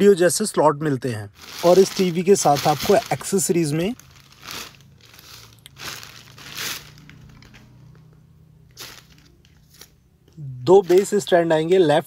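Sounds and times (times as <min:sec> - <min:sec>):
plastic bags crinkling: 0:01.4 - 0:08.0, 0:08.7 - 0:10.0, 0:10.6 - 0:11.4.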